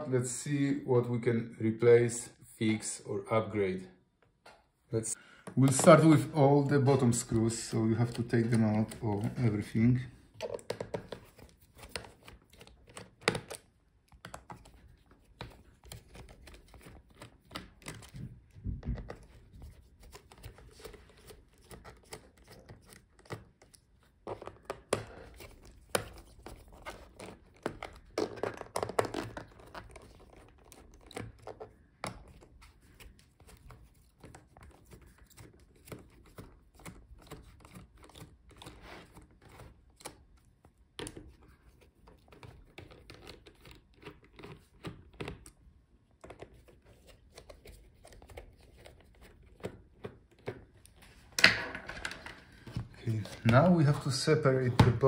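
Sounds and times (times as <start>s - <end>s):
hands handling plastic case: 5.3s - 40.3s, 46.2s - 55.0s.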